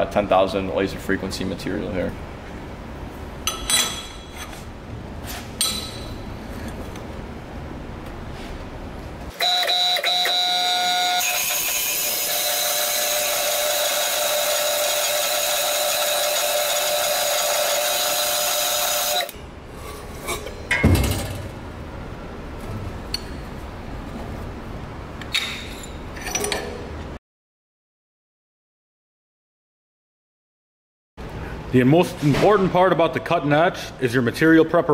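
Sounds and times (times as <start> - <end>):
circular saw cutting steel: 9.4 - 19.3.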